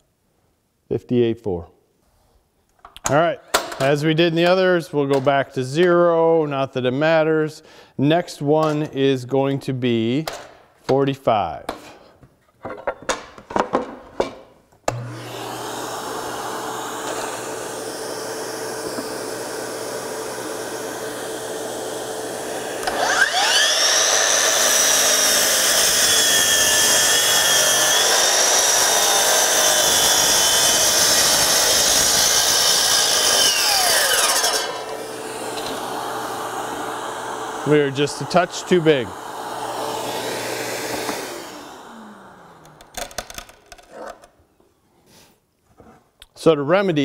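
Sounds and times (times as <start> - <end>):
dust extractor running: 14.9 - 43.1
miter saw cutting wood: 14.9 - 44.3.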